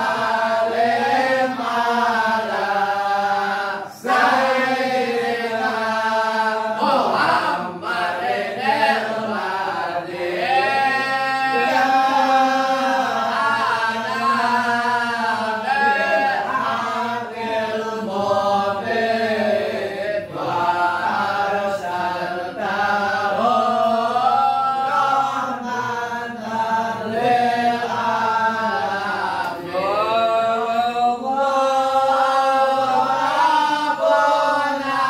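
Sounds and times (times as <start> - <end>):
congregation chanting: 0.0 - 35.0.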